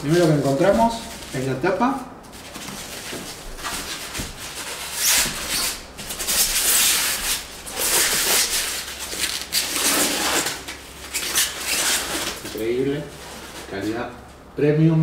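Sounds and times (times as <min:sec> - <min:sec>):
plastic wrapping rustling: 0:00.0 - 0:14.2.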